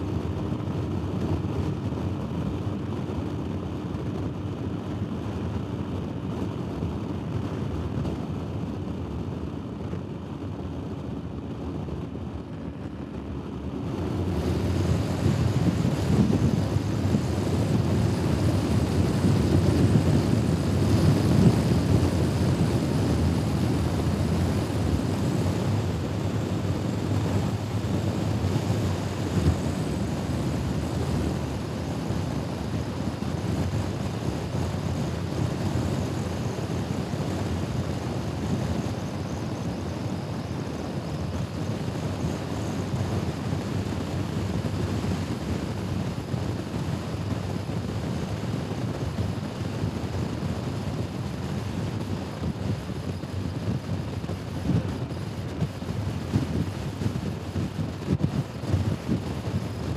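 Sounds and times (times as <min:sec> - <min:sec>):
wind noise on microphone: 0:00.0 - 0:59.9
scooter engine drone: 0:10.6 - 0:47.8.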